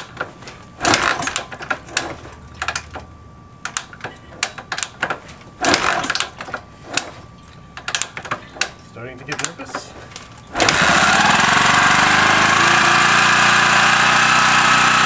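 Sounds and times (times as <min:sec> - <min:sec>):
motorcycle engine turning over: 0:00.0 - 0:03.1, 0:03.7 - 0:07.2, 0:10.2 - 0:15.0
kick lever clacks: 0:07.8 - 0:09.9.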